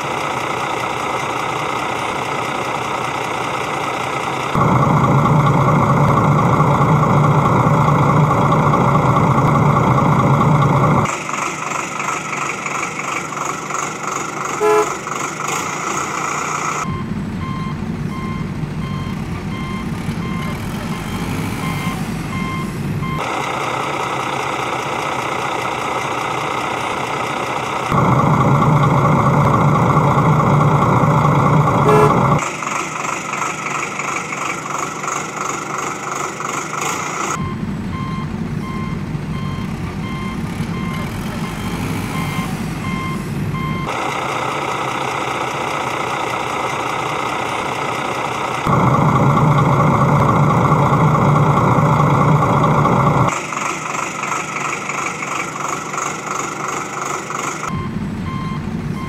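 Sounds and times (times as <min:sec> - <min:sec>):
heavy vehicle engine: 0:00.0 - 0:59.0
reversing beeper: 0:14.6 - 0:15.0, 0:16.4 - 0:23.3, 0:27.9 - 0:32.5, 0:37.1 - 0:44.0, 0:57.7 - 0:59.0.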